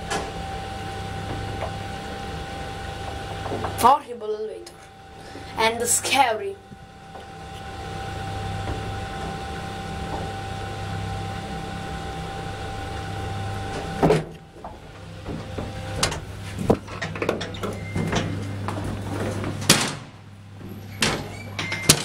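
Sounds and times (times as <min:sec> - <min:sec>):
elevator stopping with thump: 0:00.0 - 0:04.0, 0:06.7 - 0:22.0
elevator humming and whining: 0:00.0 - 0:22.0
wooden doors clicking and rattling: 0:13.6 - 0:22.0.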